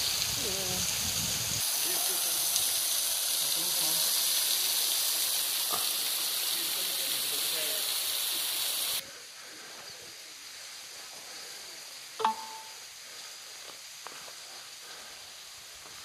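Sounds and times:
waterfall spray rushing: 0.0s - 9.0s
quiet outdoor hiss: 1.6s - 16.0s
brief tone: 12.2s - 12.8s.

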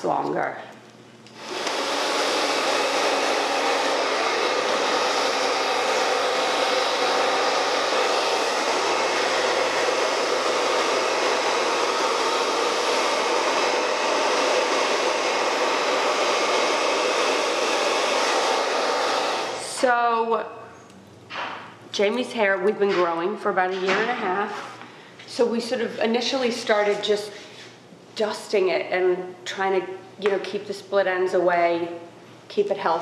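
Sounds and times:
hair dryer blowing: 1.3s - 20.4s.

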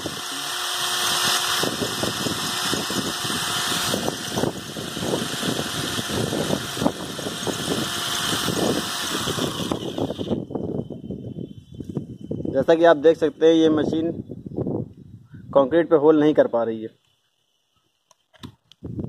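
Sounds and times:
drill bit grinding concrete: 0.0s - 13.8s
drill motor whine: 0.0s - 13.9s, 17.0s - 18.2s.

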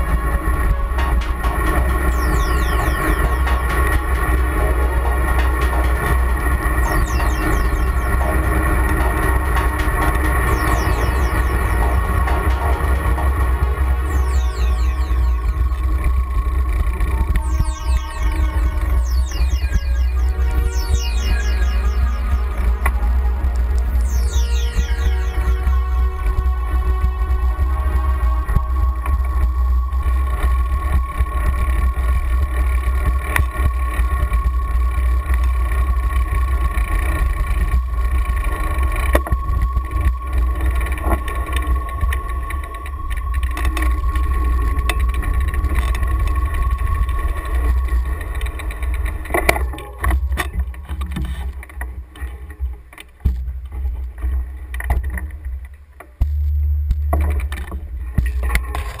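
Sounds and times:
thin steady whine: 0.0s - 59.0s.

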